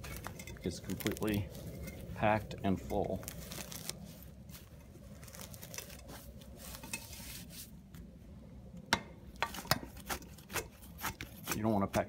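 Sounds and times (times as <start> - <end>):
lavender rustling: 0.0 - 8.2.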